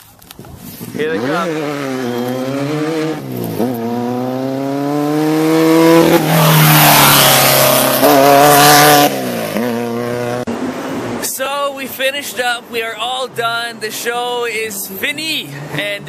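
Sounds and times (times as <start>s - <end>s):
buggy engine revving past: 0.9s - 11.4s.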